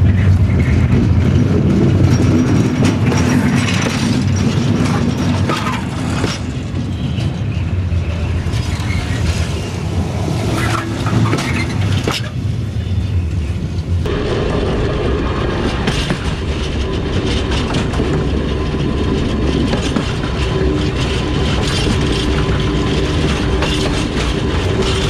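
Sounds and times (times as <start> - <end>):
wheels clicking over rail joints: 0.0 - 7.6, 10.5 - 12.5, 15.3 - 25.0
train wheels rumbling: 0.0 - 25.0.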